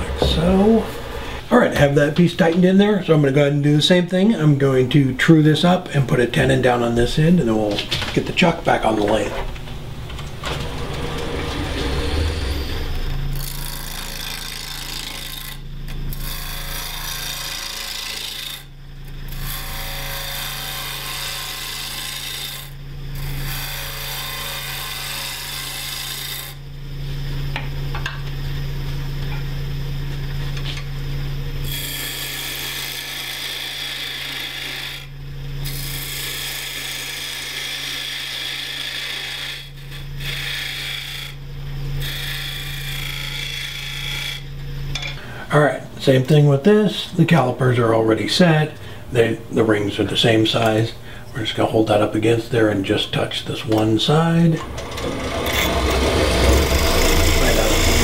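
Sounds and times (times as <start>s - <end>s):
wood lathe humming: 0.0s - 26.6s, 31.6s - 58.0s
turning tool cutting wood hiss: 48.7s - 58.0s.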